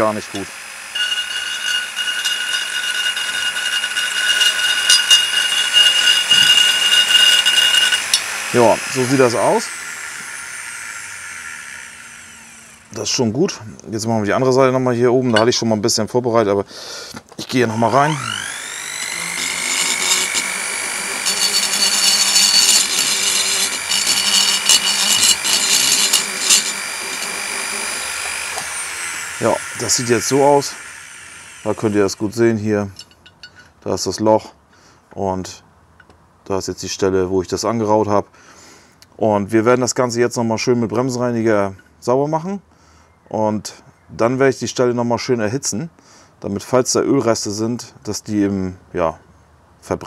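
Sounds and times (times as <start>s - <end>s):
rotary tool whine: 0.0s - 13.2s, 17.6s - 33.6s
burr grinding metal: 0.0s - 13.3s, 17.5s - 33.7s.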